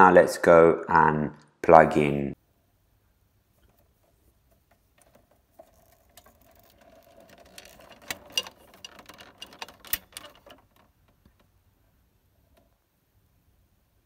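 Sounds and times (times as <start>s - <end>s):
cables rustling: 3.4s - 12.8s.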